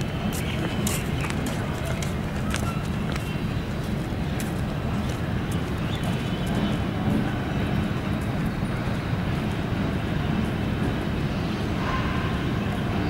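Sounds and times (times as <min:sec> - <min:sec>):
diesel locomotive rumbling: 0:00.0 - 0:13.0.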